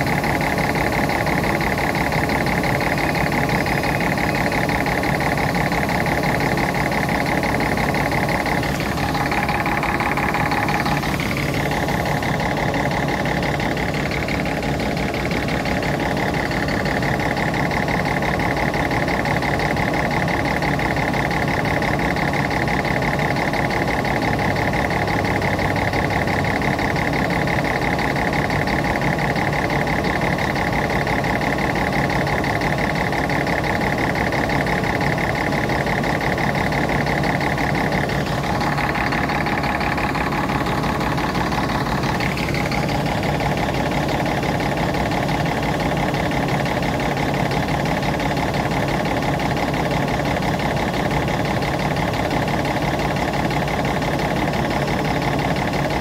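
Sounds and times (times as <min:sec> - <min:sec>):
diesel engine idling: 0:00.0 - 0:56.0
high steady whine: 0:00.0 - 0:56.0.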